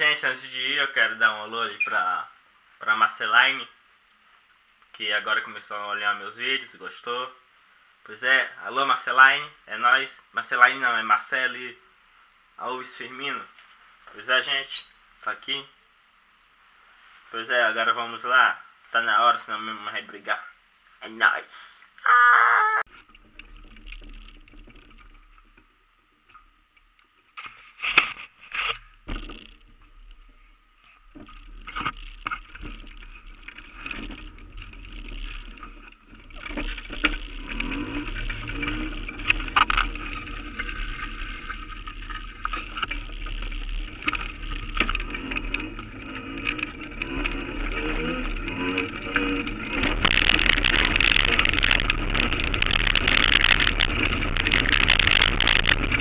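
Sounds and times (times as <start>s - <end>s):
wheels over cobblestones: 22.9s - 25.7s, 31.1s - 56.0s
rolling street noise: 31.7s - 56.0s.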